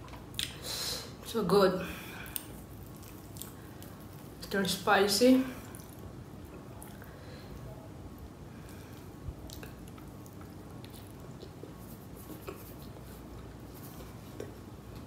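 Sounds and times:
wet chewing: 2.2 - 4.4, 5.6 - 7.1, 8.6 - 14.6.

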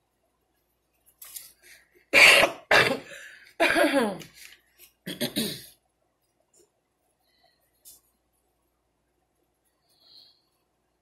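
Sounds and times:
woman coughing: 2.2 - 4.2, 5.1 - 5.7.

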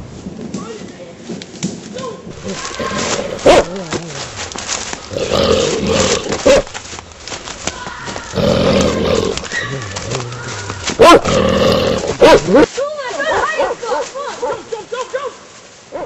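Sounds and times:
large animal roaring: 5.1 - 6.5, 8.3 - 10.6, 11.2 - 12.2.

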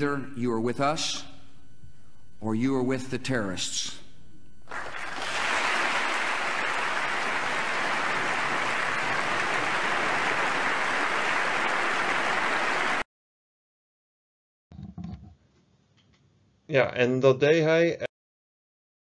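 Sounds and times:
crowd applauding: 4.7 - 13.1.

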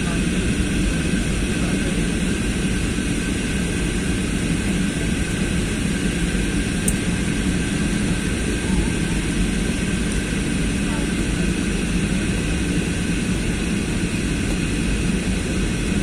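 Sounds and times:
airliner cabin drone: 0.0 - 16.0
steady whining tones: 0.0 - 16.0.

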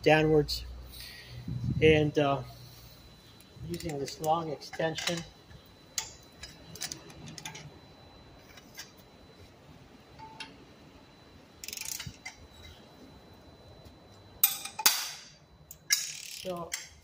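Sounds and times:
metal socket clinking on bolts: 3.8 - 5.3.

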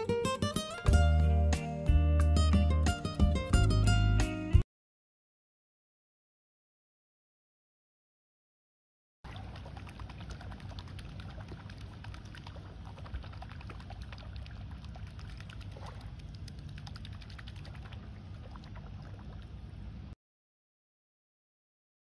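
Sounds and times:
crackle of water among shells: 9.3 - 20.1
steady low rumble: 9.4 - 20.2.

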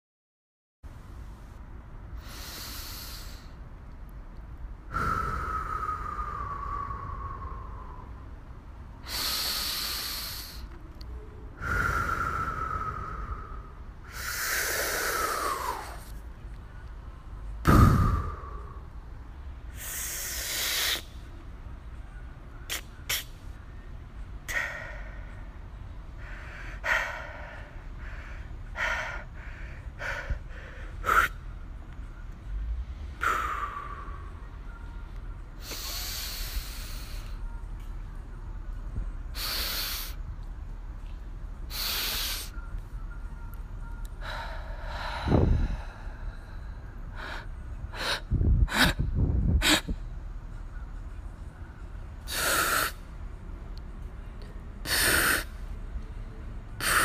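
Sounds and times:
breath-like gasps and hisses: 2.2 - 3.6, 4.9 - 7.9, 9.0 - 10.7, 11.6 - 16.1, 17.6 - 18.8, 19.7 - 21.1, 35.6 - 37.4, 39.4 - 40.2, 41.7 - 42.5, 52.3 - 53.0, 54.8 - 55.6.

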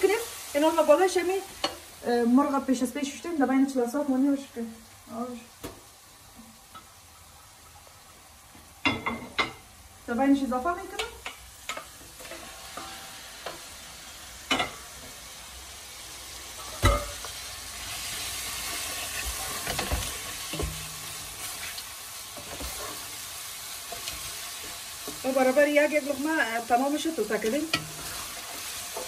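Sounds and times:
chicken sizzling in hot oil: 0.0 - 29.0
wooden spoon stirring: 18.6 - 26.1.

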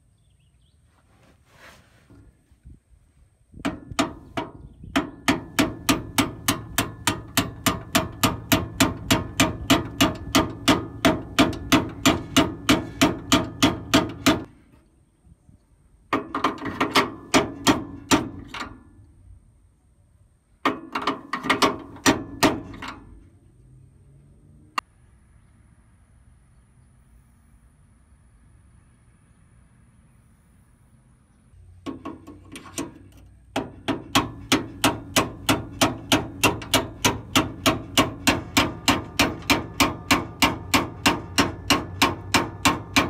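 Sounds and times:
hammer striking steel punch: 3.7 - 14.5, 33.6 - 43.0.

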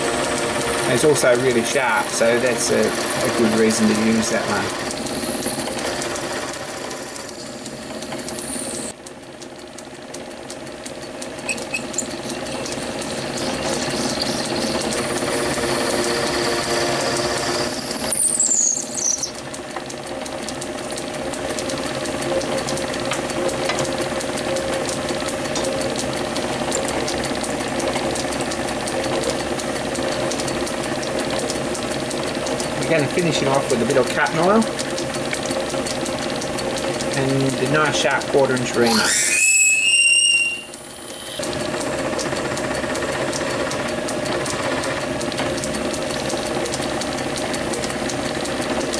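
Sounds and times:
drill squealing while cutting: 0.0 - 8.9, 11.4 - 19.5, 37.9 - 41.5
lathe humming: 0.0 - 9.0, 10.0 - 48.9.

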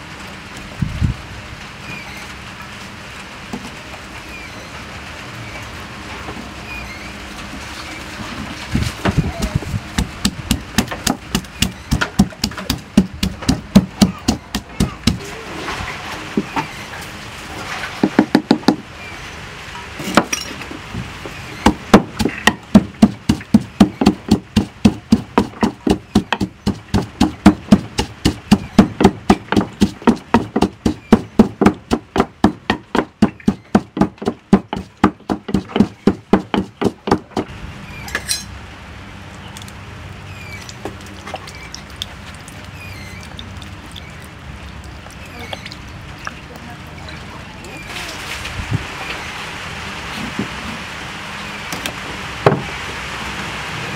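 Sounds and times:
pestle pounding in wooden mortar: 9.1 - 15.3, 18.0 - 18.8, 21.6 - 37.5.

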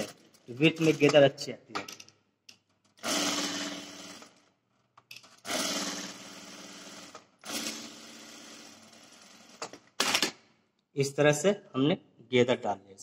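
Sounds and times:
sewing machine stitching: 3.0 - 4.4, 5.3 - 10.2.

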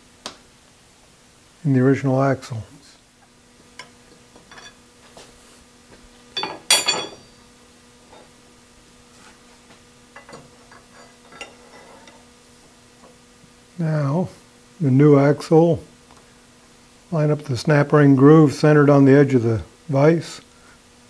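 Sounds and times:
faint steady hum: 0.0 - 21.0
ringing metallic clink: 6.4 - 7.5.

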